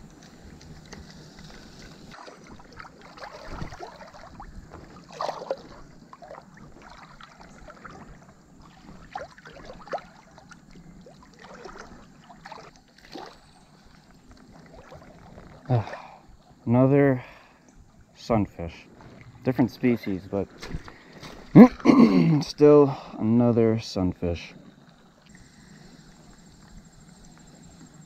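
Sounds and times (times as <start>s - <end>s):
water sloshing around legs: 0.2s - 16.2s.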